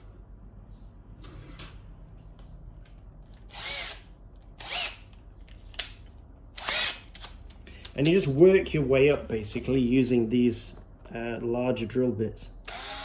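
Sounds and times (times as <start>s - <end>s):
electric drill whirring: 3.5s - 5.1s, 6.6s - 7.4s, 12.6s - 13.0s.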